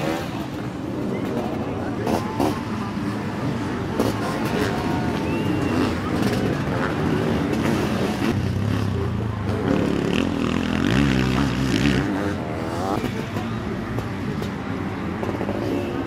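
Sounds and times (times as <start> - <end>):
motocross engines revving past: 0.0 - 16.0.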